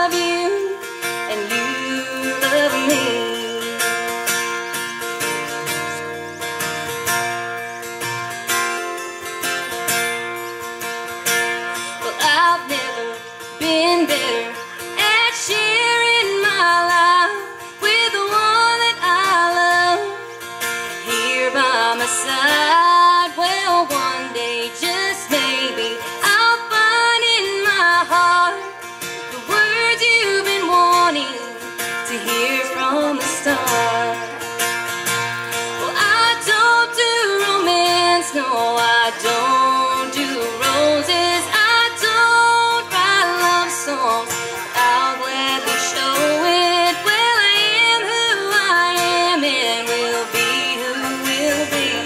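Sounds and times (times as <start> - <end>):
woman singing: 0.0 - 4.5, 11.8 - 34.7, 35.7 - 52.0
strummed acoustic guitar: 0.0 - 52.0.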